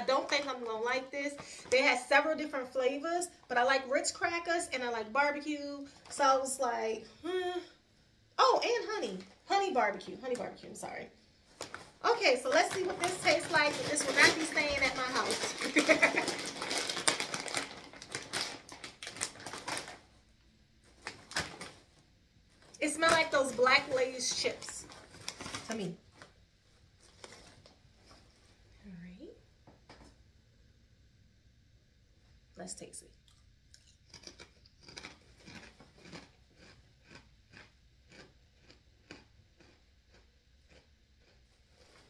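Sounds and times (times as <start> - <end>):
plastic chip bag crinkling: 0.0 - 2.1, 11.5 - 20.1, 20.9 - 22.0, 22.6 - 26.4, 27.0 - 28.2, 33.3 - 39.7.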